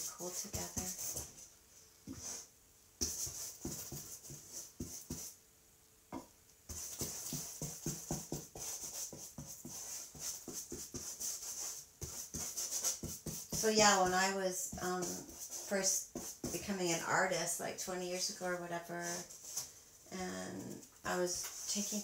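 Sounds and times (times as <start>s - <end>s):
paintbrush scrubbing wet paint: 0.0s - 1.4s, 2.2s - 5.4s, 6.7s - 16.8s, 18.8s - 19.6s, 21.1s - 22.0s.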